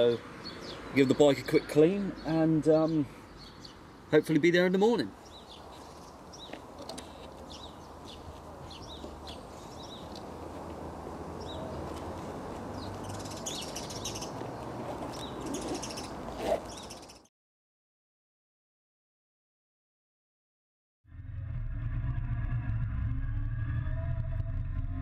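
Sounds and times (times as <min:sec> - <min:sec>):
outdoor background hiss: 0:00.0 - 0:17.2
small birds chirping: 0:00.0 - 0:17.3
loud rising sound: 0:21.1 - 0:25.0.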